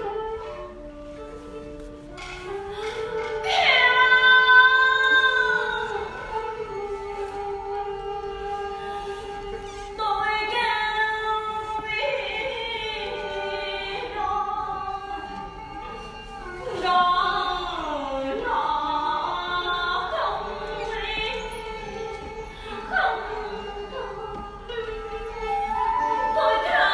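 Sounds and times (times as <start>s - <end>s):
woman singing: 2.5s - 26.9s.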